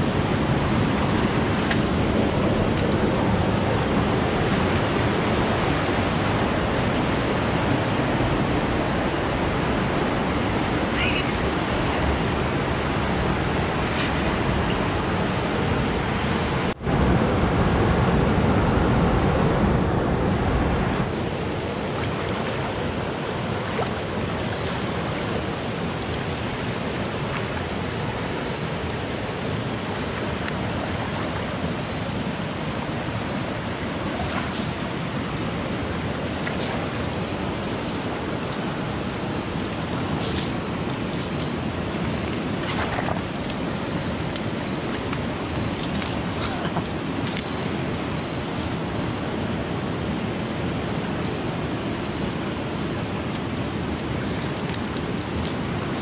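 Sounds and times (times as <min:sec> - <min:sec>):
river water rushing: 0:00.0 - 0:56.0.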